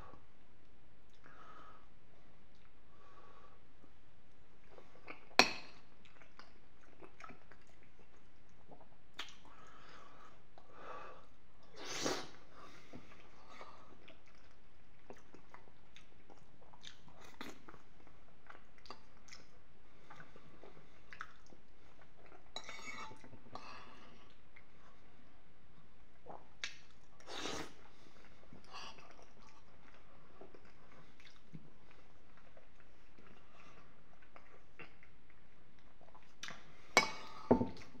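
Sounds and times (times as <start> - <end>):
man chewing food: 4.3 - 10.8, 11.6 - 25.1, 26.0 - 38.0.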